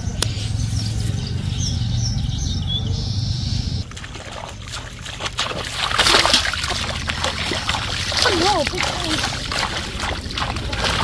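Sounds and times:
bird chirps: 0.0s - 3.8s
steady low hum: 0.0s - 11.0s
bare feet splashing through water: 3.8s - 11.0s.

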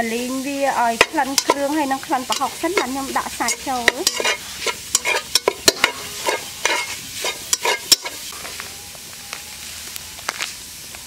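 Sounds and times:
paste sizzling as it fries: 0.0s - 11.0s
metal spatula scraping a pot: 0.9s - 8.6s.

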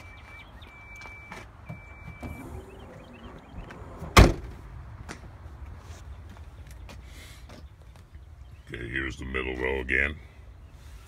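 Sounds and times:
car door slamming shut: 2.0s - 4.6s.

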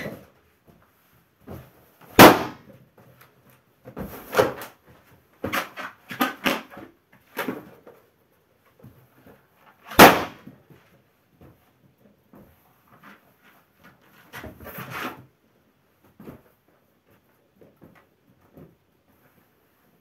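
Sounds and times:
balloon popping: 2.1s - 2.6s, 9.9s - 10.4s.

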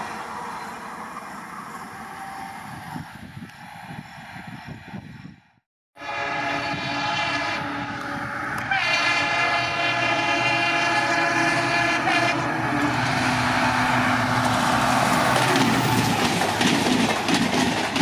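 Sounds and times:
rumble of engine and train: 0.0s - 18.0s
locomotive horn blast: 6.0s - 15.7s.

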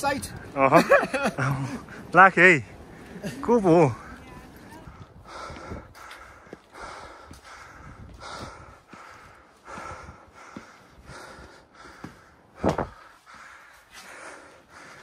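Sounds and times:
person breathing hard: 4.8s - 15.0s.

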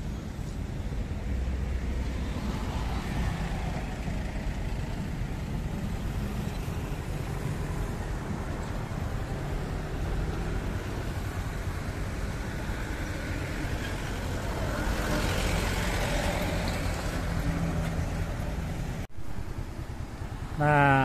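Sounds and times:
road traffic rumble: 0.0s - 21.0s
vehicle passing close by: 9.2s - 19.0s.

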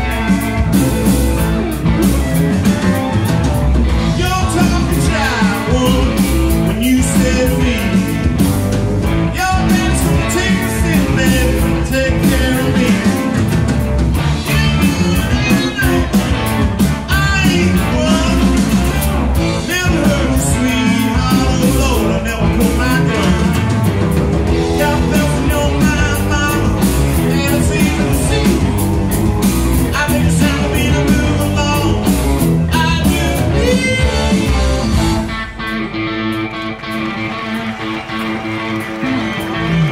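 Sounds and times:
bass guitar: 0.0s - 39.9s
drums: 0.0s - 39.9s
electric guitars: 0.0s - 39.9s
man singing lead: 2.6s - 23.9s, 24.5s - 29.1s, 29.7s - 35.3s.

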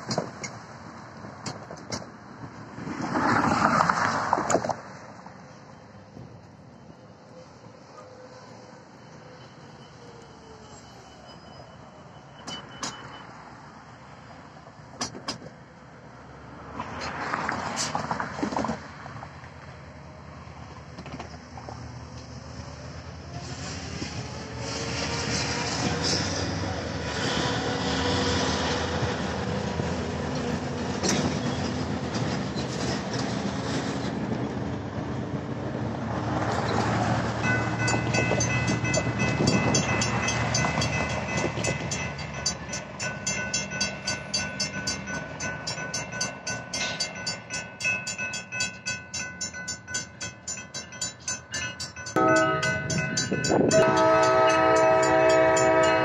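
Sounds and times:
road traffic passing: 0.0s - 56.0s
railroad crossing warning bells: 5.4s - 14.9s, 36.5s - 56.0s
train horn: 52.2s - 56.0s.

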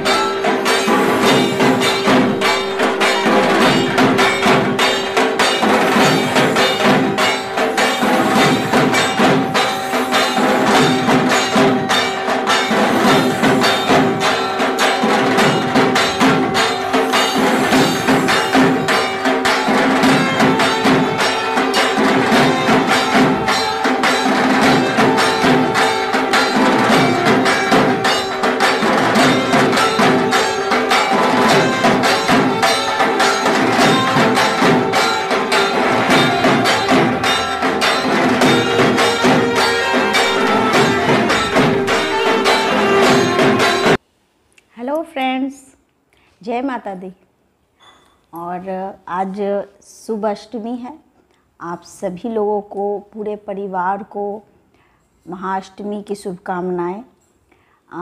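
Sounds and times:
rapid percussion: 0.0s - 44.0s
steady held tone: 0.0s - 44.0s.

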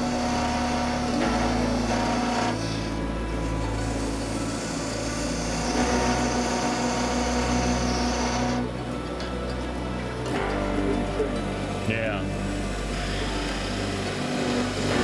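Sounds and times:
turning tool cutting wood: 0.0s - 8.8s, 12.5s - 15.0s
wood lathe motor hum: 0.0s - 15.0s.

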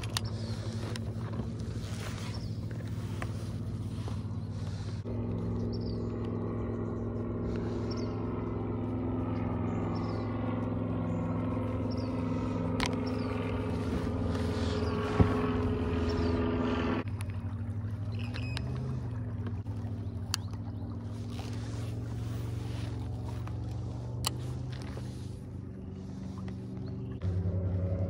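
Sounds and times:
electric trolling motor humming: 0.0s - 28.0s.

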